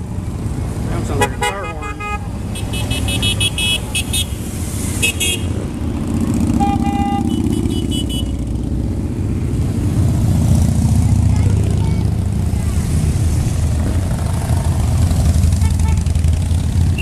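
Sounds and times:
motorcycle engines rumbling: 0.0 - 17.0
horn honk: 1.1 - 4.4, 5.0 - 5.5, 6.5 - 8.4, 15.6 - 16.2.

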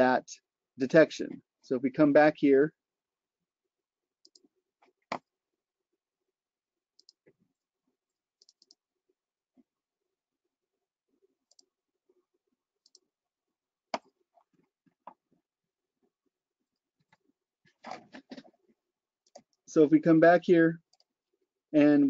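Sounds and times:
computer mouse clicks: 4.2 - 4.5, 7.0 - 7.3, 8.4 - 8.8, 11.5 - 11.7, 12.8 - 13.1, 19.2 - 19.6.

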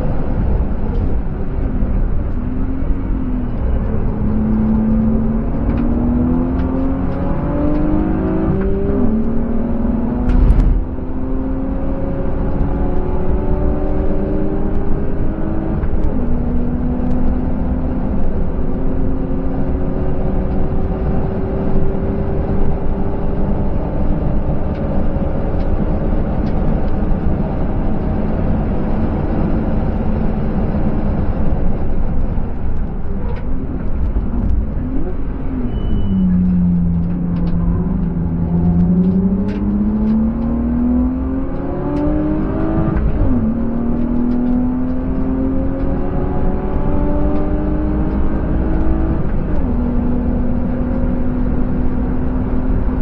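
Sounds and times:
car engine accelerating: 0.0 - 53.0
road and wind noise: 0.0 - 53.0
loud thump: 10.2 - 11.2.

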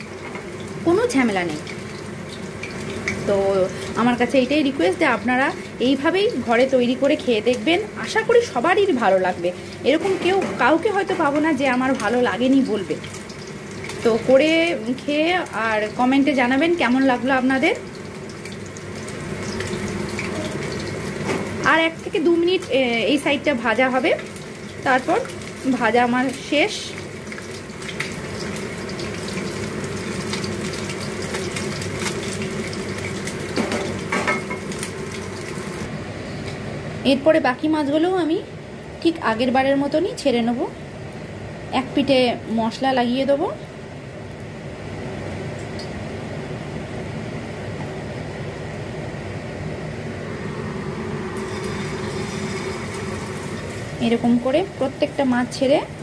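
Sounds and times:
fish sizzling in hot oil: 0.0 - 10.0, 10.8 - 35.9, 51.0 - 56.0
oil crackling: 17.1 - 35.9.

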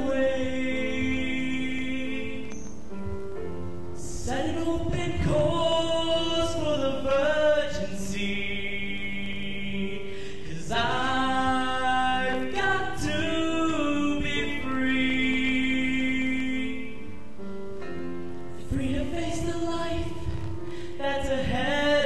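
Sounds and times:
choir singing held chords: 0.0 - 22.0
man singing solo into microphone: 4.0 - 17.1, 18.6 - 22.0.

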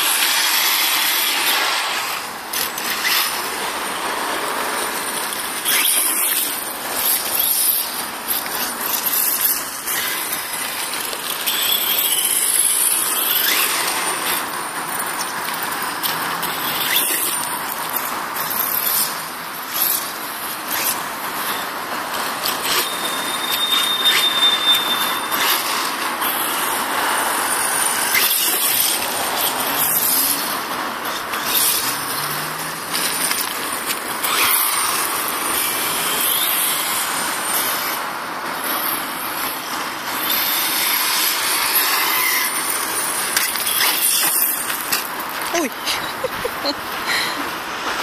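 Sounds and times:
loud rushing hiss: 0.0 - 5.0
rc truck motor whining: 0.0 - 48.0.

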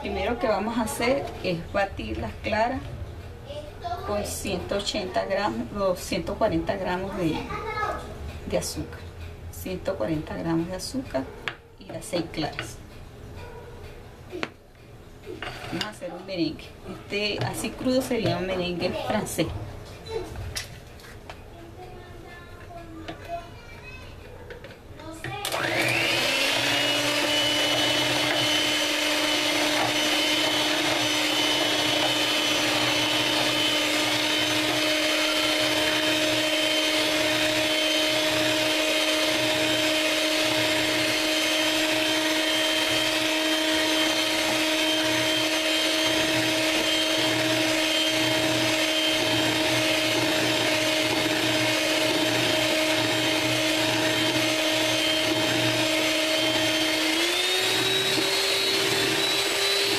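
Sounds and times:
electric hand mixer whining: 25.4 - 59.9.

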